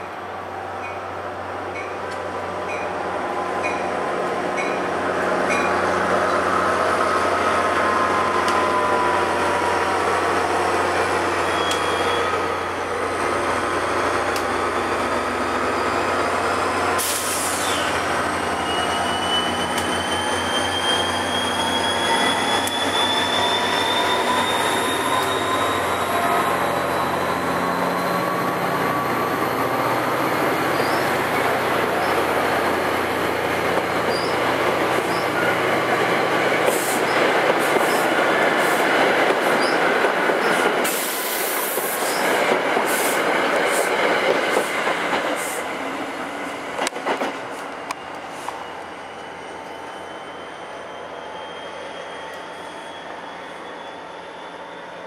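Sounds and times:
train coaches rumbling on rails: 0.0 - 55.0
thin wheel squeal: 18.5 - 28.4, 49.8 - 55.0.

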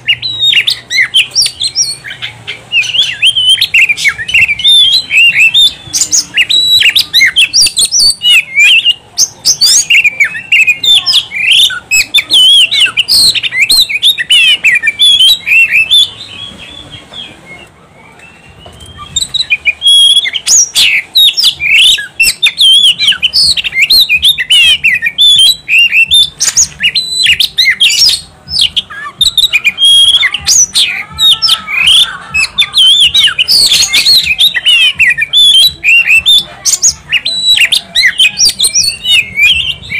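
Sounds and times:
bird singing whistles and chirps: 0.0 - 39.9.

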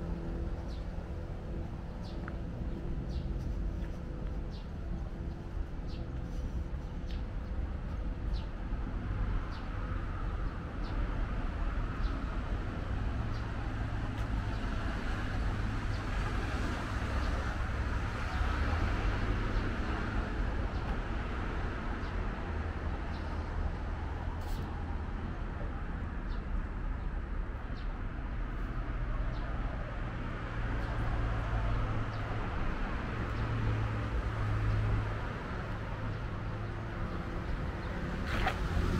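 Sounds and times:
low traffic hum: 0.0 - 38.9
vehicle passing: 30.6 - 38.9.

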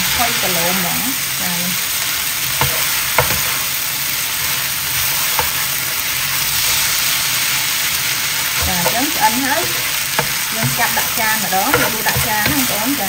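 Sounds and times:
noodles sizzling in frying pan: 0.0 - 13.0
spatula knocking on pan: 2.6 - 3.6, 5.3 - 5.6, 8.6 - 13.0.

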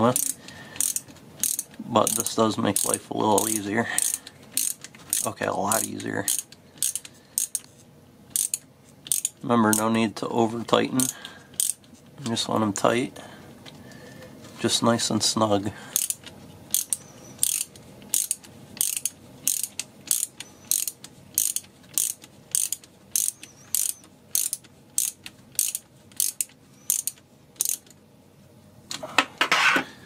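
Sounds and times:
ratcheting screwdriver clicking: 0.1 - 2.2, 2.8 - 7.7, 8.3 - 9.9, 11.0 - 11.9, 16.0 - 27.9.

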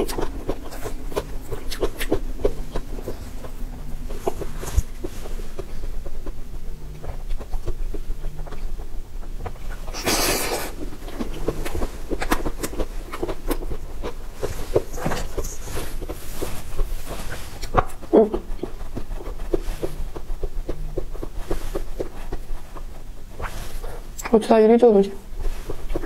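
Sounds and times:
wet mouth clicks and smacks: 0.0 - 3.2.

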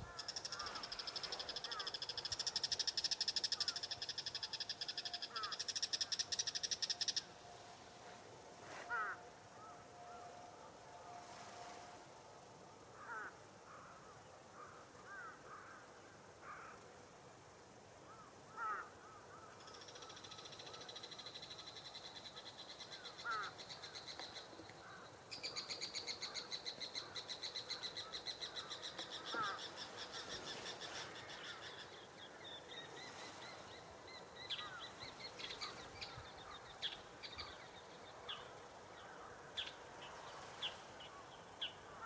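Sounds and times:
crows calling in distance: 0.0 - 7.3, 8.7 - 10.4, 12.9 - 16.8, 18.1 - 21.0, 22.9 - 33.4, 34.4 - 37.7, 38.3 - 40.2, 41.0 - 42.0.

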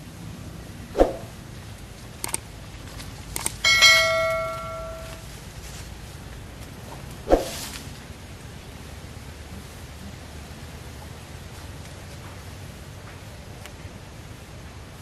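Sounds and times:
bell ding: 3.6 - 5.2.

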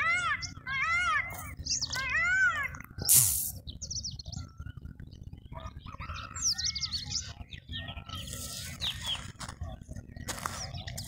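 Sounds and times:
birds calling: 0.0 - 11.0
high thin bird chirps: 3.0 - 3.7.

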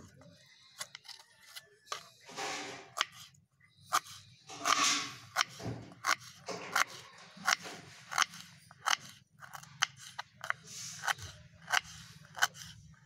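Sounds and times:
knife chopping on wooden board: 4.0 - 12.8.

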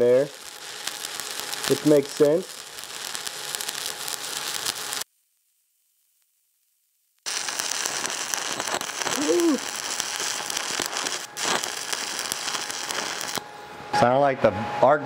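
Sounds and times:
welding arc crackling: 0.0 - 5.1, 7.2 - 13.5.

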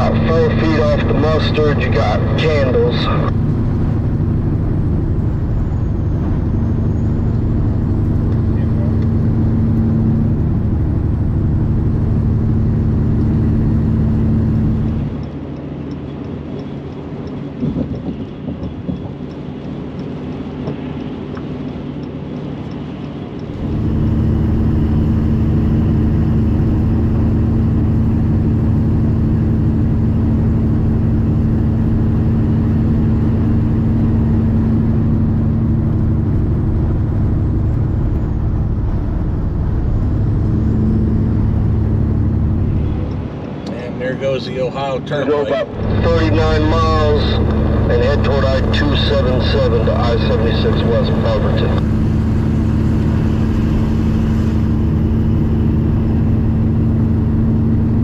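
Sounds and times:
tyre and road noise: 0.0 - 58.0
vehicle engine drone: 0.0 - 58.0
faint regular ticking: 15.0 - 23.6.

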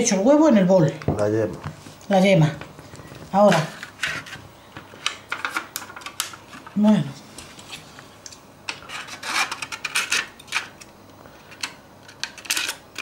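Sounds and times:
plastic and foil packaging rustling: 1.2 - 6.8, 8.8 - 13.0.

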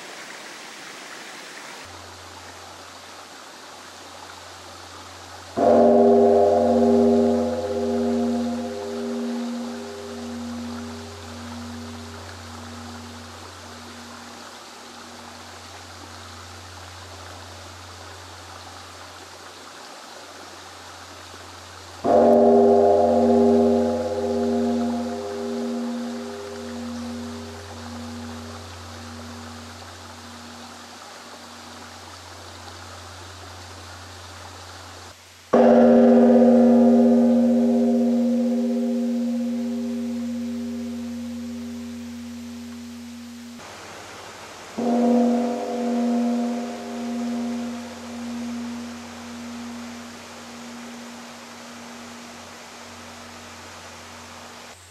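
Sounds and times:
steady low hum: 5.1 - 19.1, 21.9 - 34.0, 35.6 - 43.7, 44.8 - 54.4
temple bell ringing: 5.6 - 15.6, 22.0 - 31.8, 35.6 - 43.6, 44.8 - 53.5.

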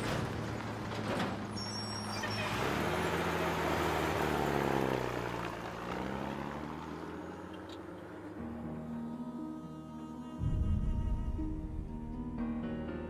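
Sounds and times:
dump truck engine revving: 0.0 - 8.2.

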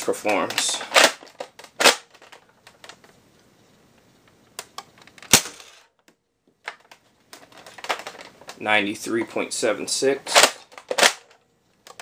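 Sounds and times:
plastic clicks and clacks: 0.0 - 3.2, 4.2 - 8.6, 10.3 - 12.0.

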